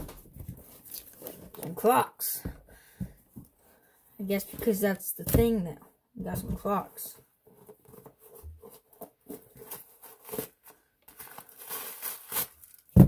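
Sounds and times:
packing paper crinkling: 9.3 - 13.0.

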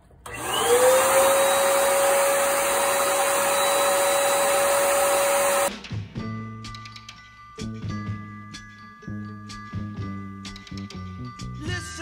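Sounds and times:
turbine whining: 0.2 - 5.7.

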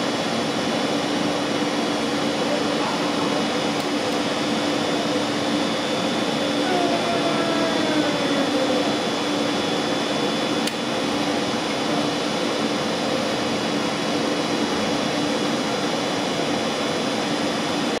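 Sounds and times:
cooling blowers humming: 0.0 - 18.0
sharp click: 10.6 - 10.8.

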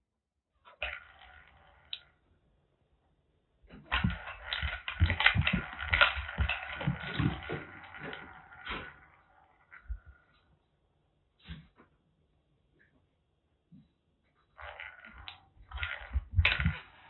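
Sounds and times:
wooden ball rattling in a track: 0.7 - 2.2, 3.7 - 10.5, 14.5 - 17.0.

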